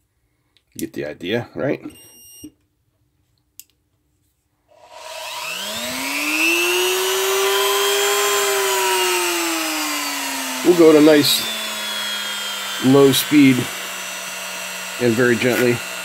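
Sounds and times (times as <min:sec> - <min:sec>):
rotary tool motor whine: 0:04.7 - 0:16.0.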